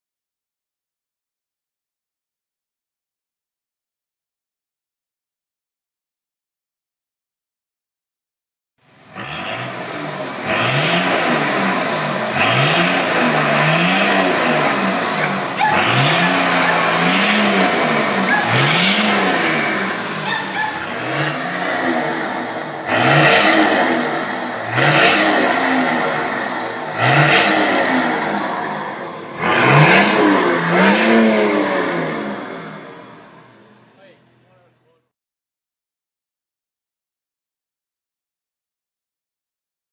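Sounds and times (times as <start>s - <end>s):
diesel engine revving: 8.9s - 35.0s.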